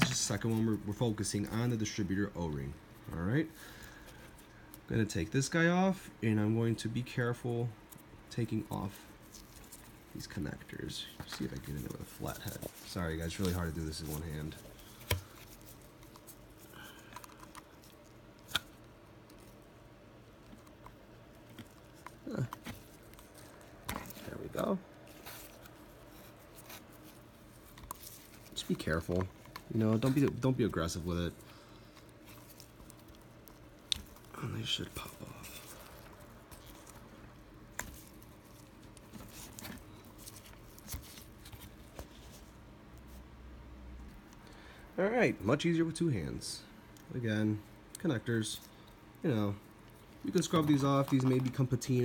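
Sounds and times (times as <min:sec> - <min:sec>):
gloved fingers rustling: 0:07.4 - 0:43.2, 0:46.8 - 0:52.0.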